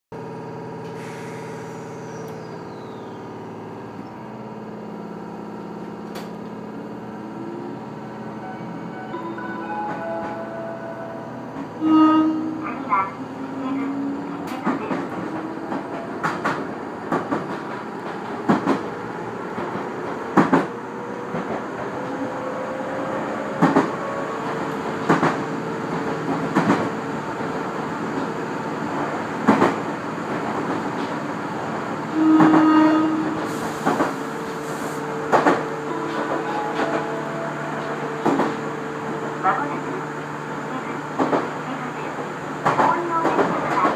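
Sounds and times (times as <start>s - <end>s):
steady train running hum: 0.1s - 43.9s
train horn blast: 11.8s - 13.9s, 32.1s - 33.5s.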